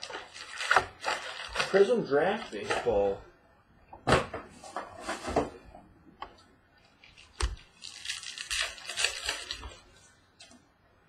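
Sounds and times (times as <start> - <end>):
plastic wrapping crinkling: 0.0 - 3.1, 6.8 - 10.6.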